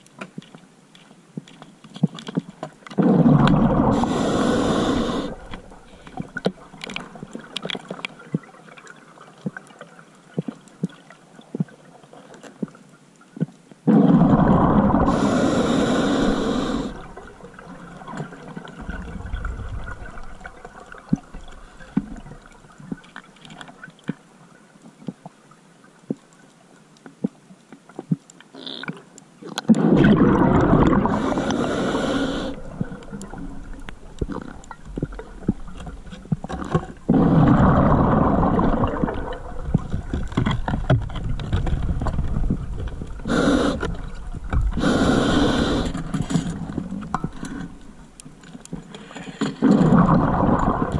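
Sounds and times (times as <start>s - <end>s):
faint crackling clicks: 0.0s - 13.9s, 15.1s - 38.0s, 38.7s - 50.9s
exhaled bubbles: 2.9s - 7.5s, 13.9s - 23.1s, 29.7s - 47.5s, 49.6s - 50.9s
diver breathing through regulator: 3.0s - 6.2s, 15.0s - 17.2s, 31.0s - 33.0s, 43.2s - 44.1s, 44.7s - 46.4s.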